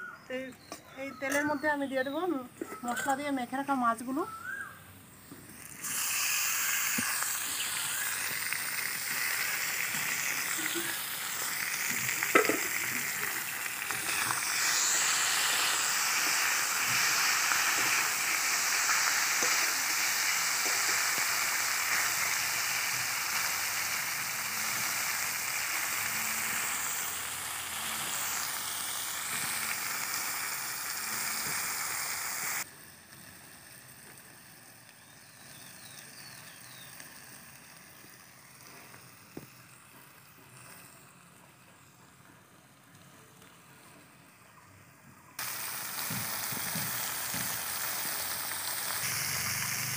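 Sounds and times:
fish sizzling in hot oil: 5.3s - 41.6s, 45.4s - 49.9s.

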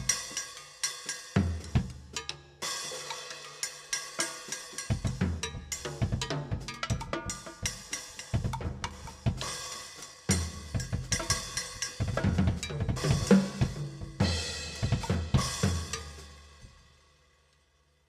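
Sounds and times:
drum kit playing: 0.0s - 17.0s
cymbal crash: 9.4s - 17.2s.

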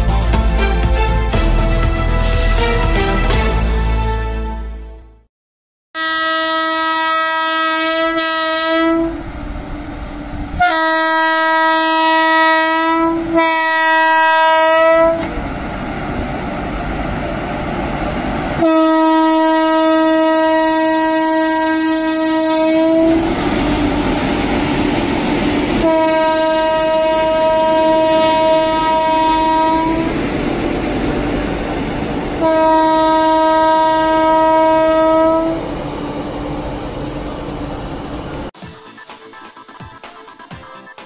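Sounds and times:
train rumbling over track: 0.0s - 4.2s, 6.9s - 39.7s
locomotive horn blasts: 6.0s - 9.2s, 10.6s - 15.3s, 18.6s - 23.2s, 25.8s - 30.1s, 32.4s - 35.7s.

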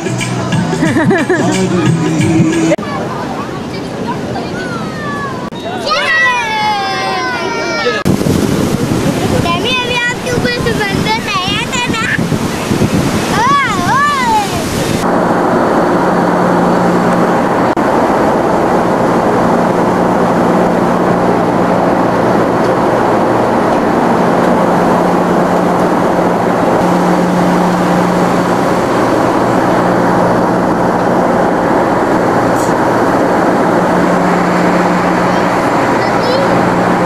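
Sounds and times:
airliner cabin engine rush: 6.1s - 37.0s
low steady hum: 15.0s - 37.0s.

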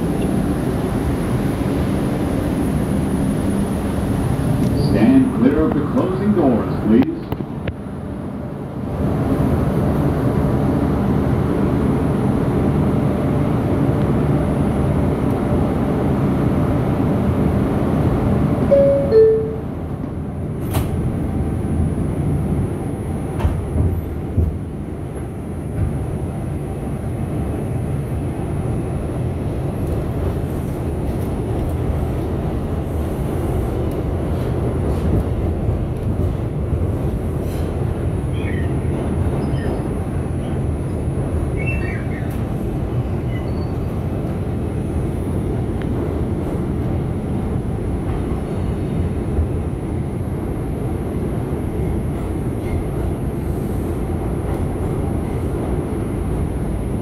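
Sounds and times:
train equipment hum: 0.0s - 57.0s
train wheels rumbling on track: 0.0s - 57.0s
two-note door chime: 18.7s - 19.7s
train clicks: 29.8s - 37.9s.

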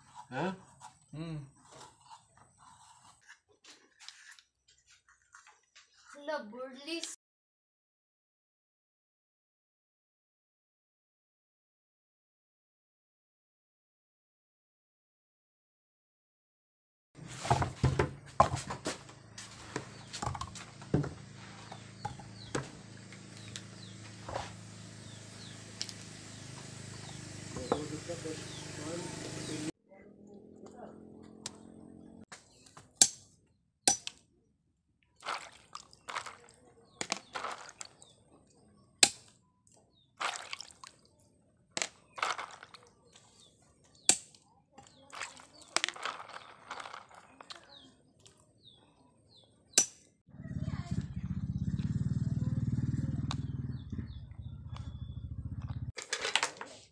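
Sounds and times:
bird chirps: 21.6s - 29.7s, 53.3s - 55.6s.

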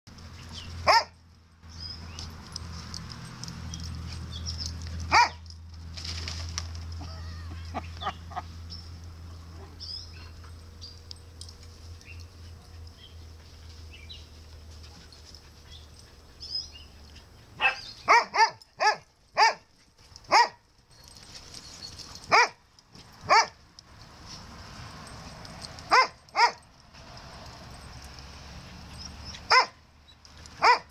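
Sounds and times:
dog barking: 0.8s - 1.2s, 5.1s - 5.4s, 17.6s - 19.6s, 20.3s - 20.6s, 22.3s - 22.6s, 23.3s - 23.5s, 25.9s - 26.6s, 29.5s - 29.8s, 30.6s - 30.9s.

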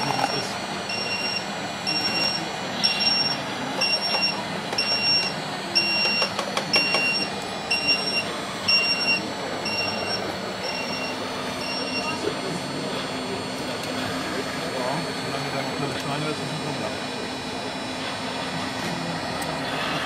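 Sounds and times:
reversing alarm beeps: 0.3s - 12.9s.

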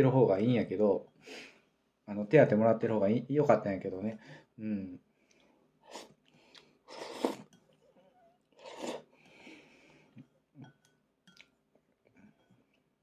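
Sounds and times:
man chewing: 5.3s - 9.5s
man slurping food: 5.9s - 7.5s, 8.6s - 9.2s.

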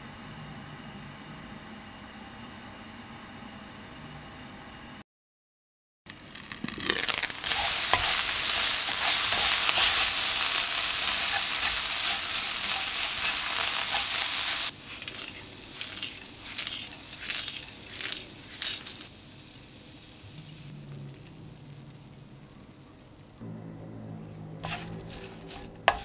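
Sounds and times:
seeds pattering in pan: 6.1s - 19.2s
vegetables sizzling in frying pan: 6.3s - 21.2s, 24.6s - 26.0s.

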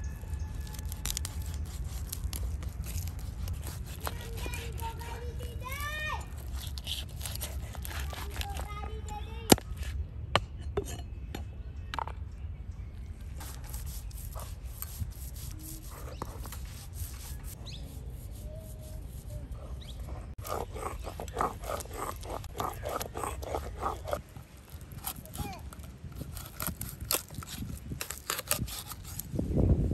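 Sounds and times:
stone rasping scrape: 0.6s - 8.7s, 13.4s - 29.2s.

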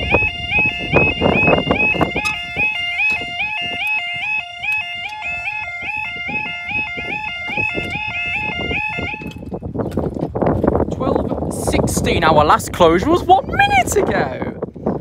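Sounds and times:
level crossing alarm warbling: 0.0s - 9.5s.

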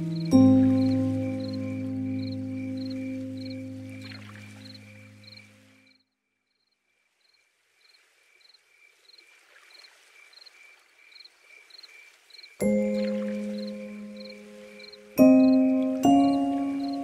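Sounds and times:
background music: 0.0s - 5.4s, 12.6s - 17.0s
insect-like chirps: 0.0s - 17.0s.

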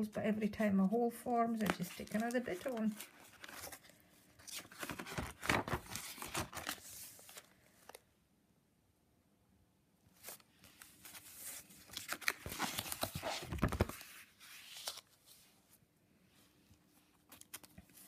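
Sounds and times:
paper pages rustling: 1.6s - 8.0s, 10.2s - 15.7s, 16.9s - 18.0s.

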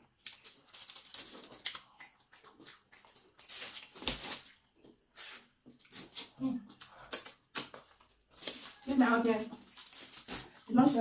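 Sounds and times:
person chewing with wet smacks: 0.0s - 8.6s.

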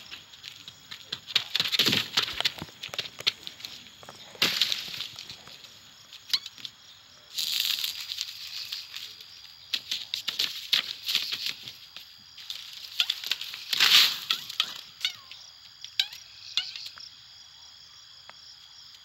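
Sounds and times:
small clicks and rustles: 0.0s - 6.8s, 7.4s - 15.1s.

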